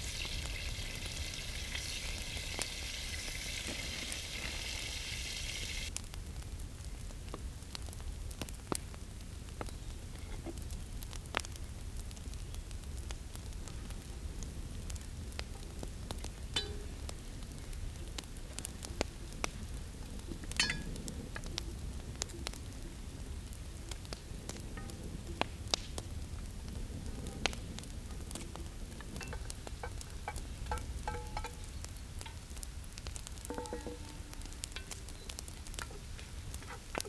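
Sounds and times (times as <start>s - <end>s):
food sizzling in pot: 0.0s - 5.9s, 20.6s - 21.0s, 29.1s - 37.0s
sharp pops and crackles: 0.0s - 37.0s.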